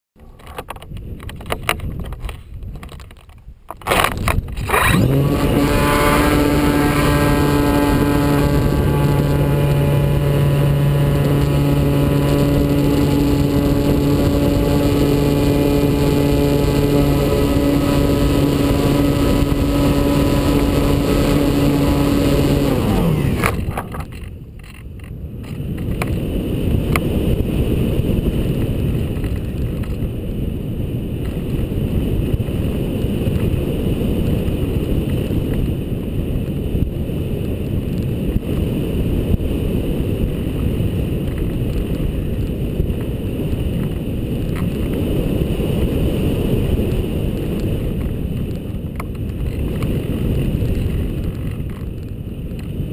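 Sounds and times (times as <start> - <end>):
wind noise on camera: 0.2 - 52.9
electric motor and propeller running: 3.9 - 30.2.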